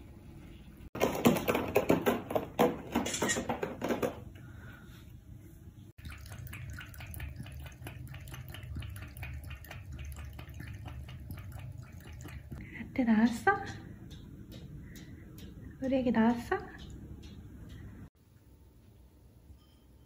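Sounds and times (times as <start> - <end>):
cat lapping water: 6.0 - 12.8.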